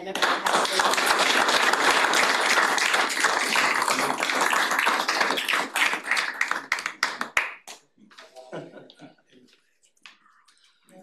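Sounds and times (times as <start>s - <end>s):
small group applauding: 0.0s - 8.4s.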